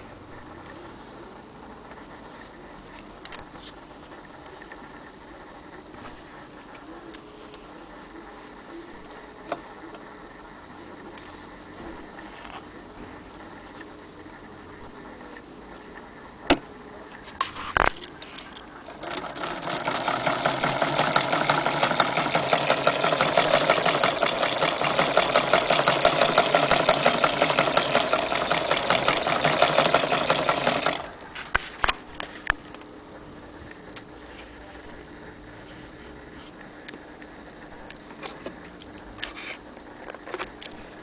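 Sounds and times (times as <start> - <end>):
sewing machine clattering: 18.9 - 31.1
sewing machine mechanism clicks: 18.9 - 31.1.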